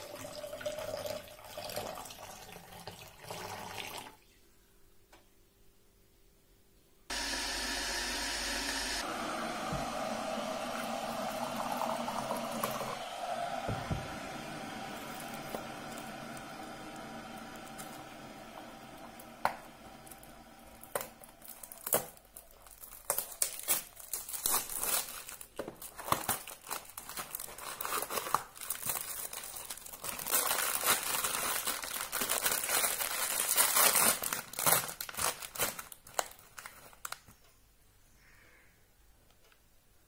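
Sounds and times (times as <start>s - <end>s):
foil sachet crinkling and tearing: 20.2s - 37.3s.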